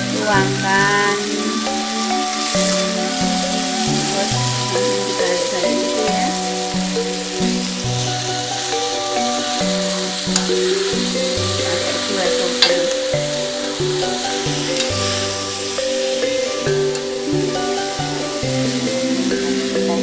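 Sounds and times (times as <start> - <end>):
background music: 0.0 - 20.0
noodles sizzling in wok: 0.0 - 20.0.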